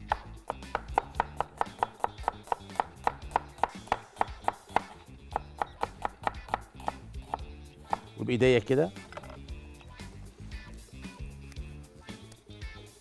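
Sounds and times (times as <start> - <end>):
cleaver knocking on cutting board: 0.1 - 8.1.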